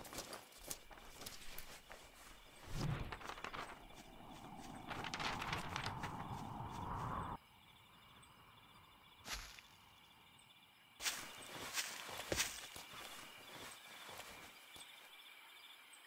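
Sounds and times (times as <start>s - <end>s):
rustling: 0.0s - 7.0s
footsteps: 11.0s - 14.9s.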